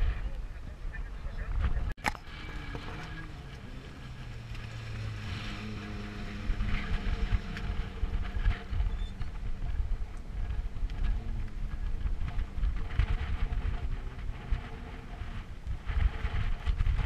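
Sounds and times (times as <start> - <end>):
race vehicle engine running: 0.0 - 17.0.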